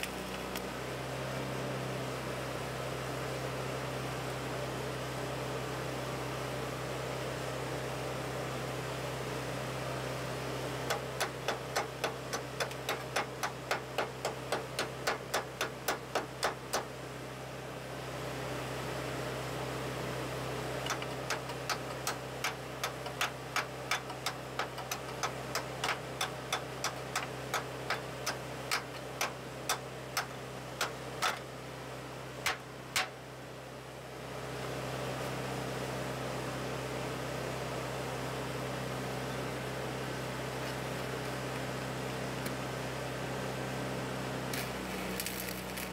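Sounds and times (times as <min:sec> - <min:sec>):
steady low hum: 0:00.0 - 0:45.9
welding arc pulses: 0:44.6 - 0:45.9.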